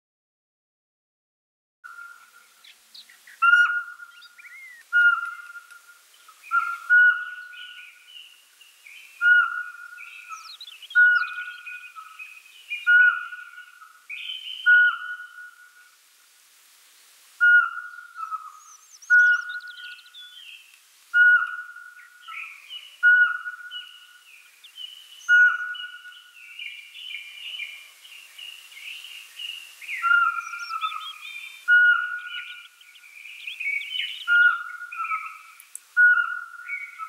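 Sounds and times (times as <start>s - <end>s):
birds chirping and twittering: 1.9s - 16.1s, 16.9s - 37.0s
owl whistled notes: 3.4s - 5.8s, 6.5s - 7.9s, 9.2s - 12.2s, 12.8s - 15.9s, 17.4s - 20.4s, 21.1s - 24.1s, 25.2s - 26.3s, 29.9s - 32.7s, 33.6s - 35.4s, 36.0s - 37.0s.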